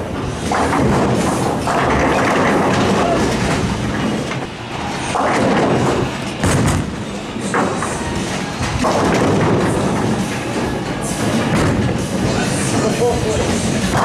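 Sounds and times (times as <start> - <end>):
bowling ball rolling: 0.0 - 14.0
busy bowling alley noise: 0.0 - 14.0
ball crashing into pins: 0.5 - 3.6, 8.8 - 10.0.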